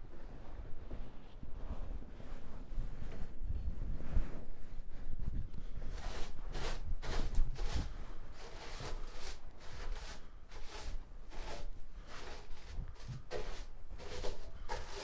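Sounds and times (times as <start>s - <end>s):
broom sweeping floor: 5.9s - 15.0s.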